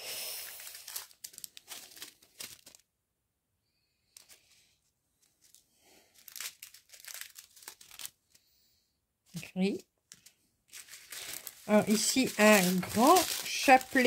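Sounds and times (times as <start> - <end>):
plastic sachets crinkling: 0.3 - 2.9, 4.1 - 4.5, 5.2 - 8.5, 9.6 - 14.0.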